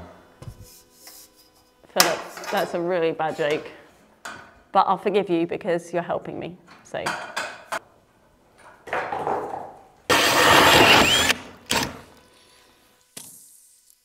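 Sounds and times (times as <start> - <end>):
power tool cutting wood: 10.1 - 12.4.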